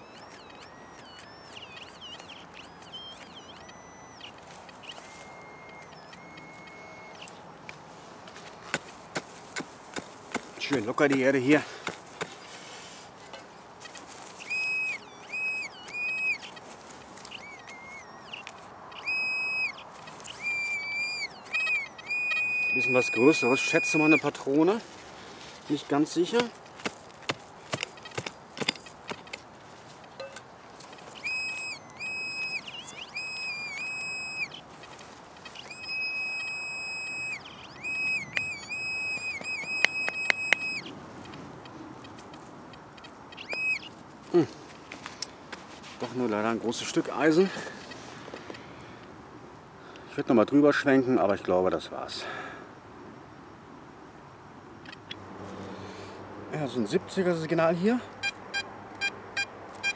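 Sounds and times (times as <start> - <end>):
high electronic beeps: 0.0 - 7.5, 14.4 - 16.6, 17.3 - 24.5, 31.2 - 34.6, 58.2 - 59.9
pinpointer electronic alert tone: 0.0 - 7.5
sharp clicks: 0.0 - 12.4, 26.4 - 43.8.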